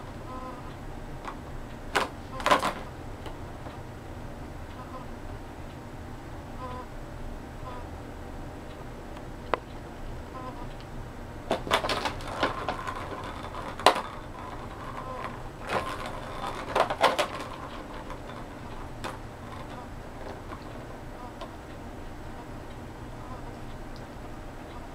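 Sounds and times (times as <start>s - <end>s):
ball rattling around plastic track: 1.2s - 3.4s, 11.5s - 21.5s.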